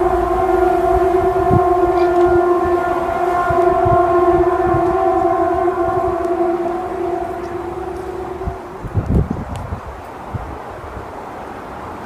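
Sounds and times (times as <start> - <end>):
loud low horn-like drone: 0.0 - 9.3.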